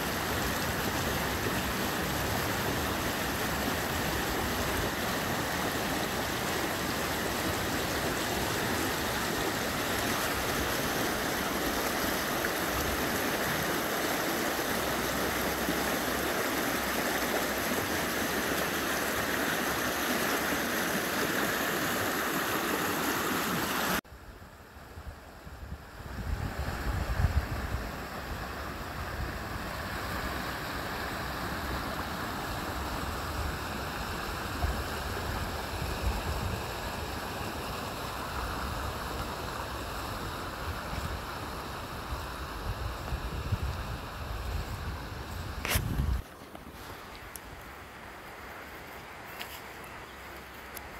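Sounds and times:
creek rushing over rocks: 0:00.0 - 0:24.0, 0:26.1 - 0:50.9
wind buffeting microphone: 0:42.5 - 0:46.3.

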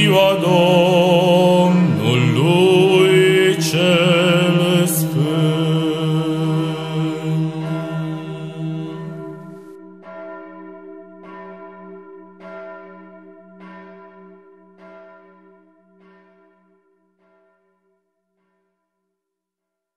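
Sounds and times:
music: 0:00.0 - 0:12.6
church bell tolling: 0:00.0 - 0:18.7.

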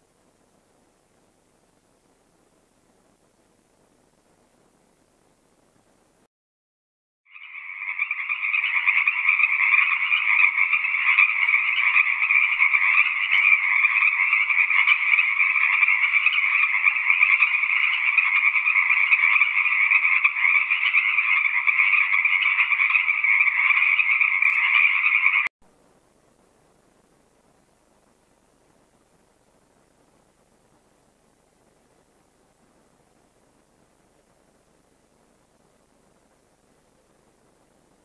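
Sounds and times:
frogs calling in chorus: 0:07.3 - 0:25.5.

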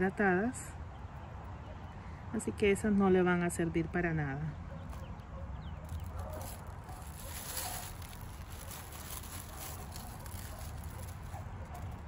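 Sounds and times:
hands digging through soil: 0:05.8 - 0:12.0
plastic bag crinkling: 0:05.8 - 0:12.0.

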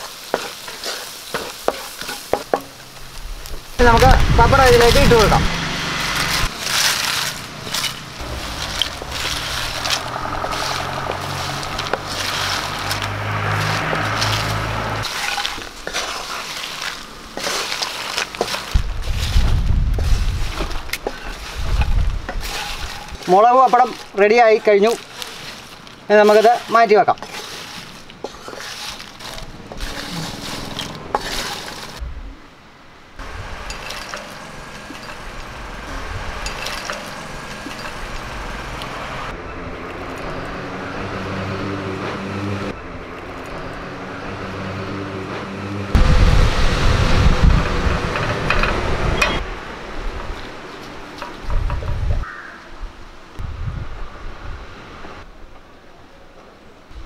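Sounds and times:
wooden spatula stirring fried pieces: 0:00.0 - 0:02.8, 0:06.6 - 0:32.0
low hum: 0:03.2 - 0:15.1
dry pieces crackling and rustling: 0:06.0 - 0:32.0.

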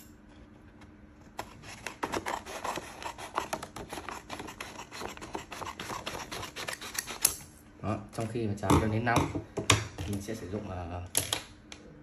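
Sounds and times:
scissors cutting paper: 0:01.4 - 0:07.4.

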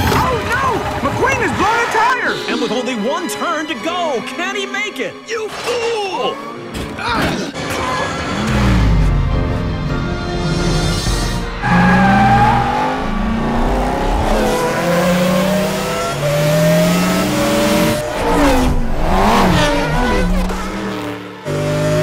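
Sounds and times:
race car engines revving: 0:11.4 - 0:22.0
race cars passing by: 0:11.6 - 0:22.0.

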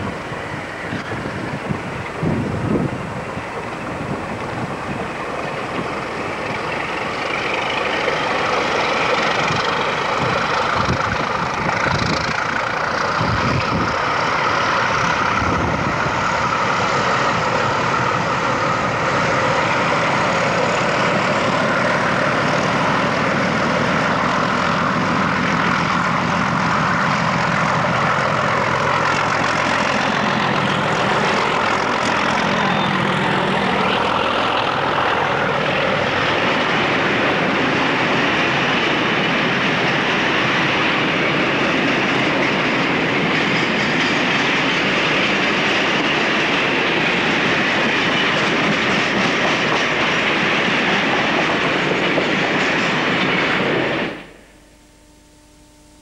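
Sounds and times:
wind buffeting microphone: 0:00.0 - 0:06.3, 0:09.1 - 0:25.7
diesel locomotive engine: 0:00.0 - 0:56.0.

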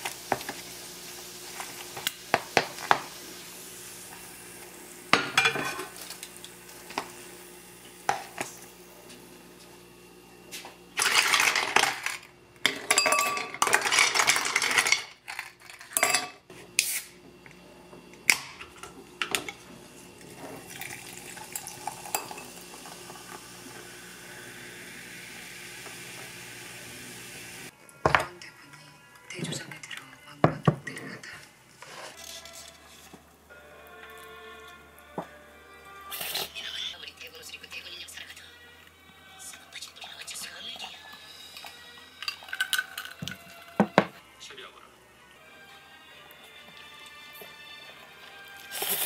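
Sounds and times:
ice cubes clattering: 0:11.0 - 0:16.1, 0:42.2 - 0:44.0
utensils stirring noodles in cup: 0:20.2 - 0:23.4, 0:40.8 - 0:43.9.

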